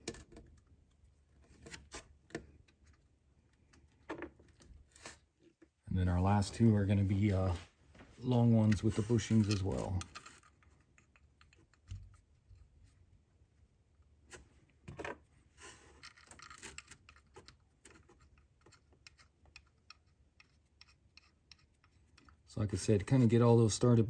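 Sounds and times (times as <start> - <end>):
small metallic clicks: 16.0 - 22.6.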